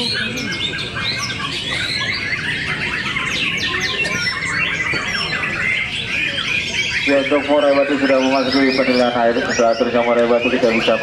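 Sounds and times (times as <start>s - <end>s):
songbirds chorus of whistles and trills: 0.0s - 11.0s.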